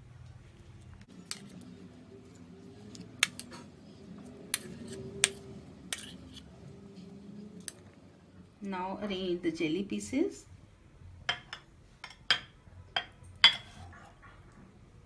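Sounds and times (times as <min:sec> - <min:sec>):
metal spoon clinking on dishes: 0:11.3 - 0:13.9.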